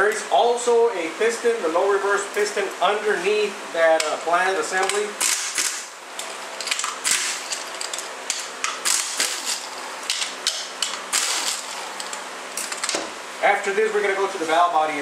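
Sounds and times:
impact wrench rattling: 6.6s - 13.0s.

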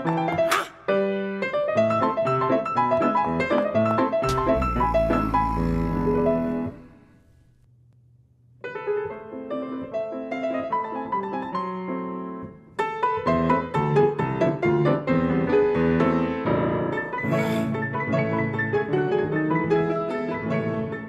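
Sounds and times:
grand piano playing fast runs: 1.9s - 7.2s.

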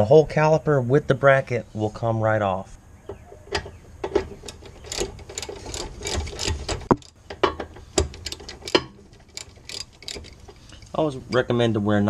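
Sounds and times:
ratchet wrench clicking: 4.4s - 7.2s, 7.8s - 10.9s.

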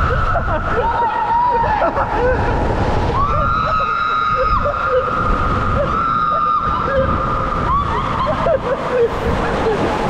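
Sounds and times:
people whooping: 0.0s - 2.4s, 3.1s - 9.8s
people screaming: 0.0s - 9.9s
raft sliding through water: 0.0s - 10.0s
rushing water: 0.0s - 10.0s.

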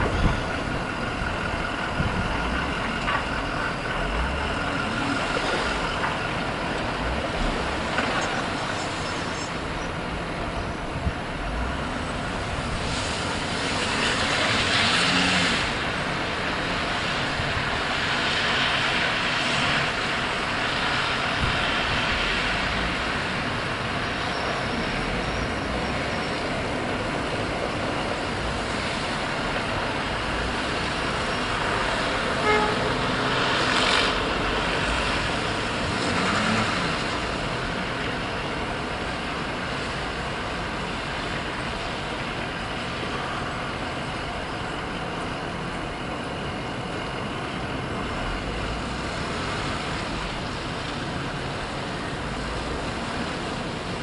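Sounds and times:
street traffic: 0.0s - 54.0s
horn toot: 32.4s - 33.1s.

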